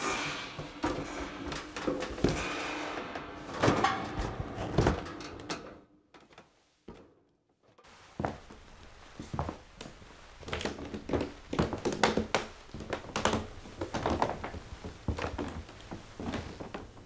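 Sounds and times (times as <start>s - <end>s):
door banging: 0.0s - 5.8s.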